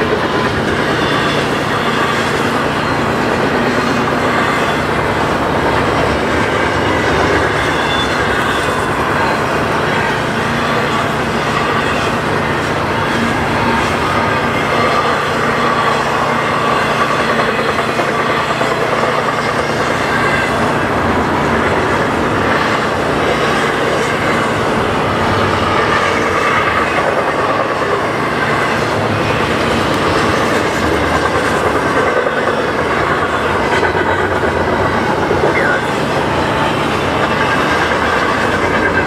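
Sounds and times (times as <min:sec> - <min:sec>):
freight train wheels clattering: 0:00.0 - 0:39.0
wheel squeal: 0:06.5 - 0:20.8.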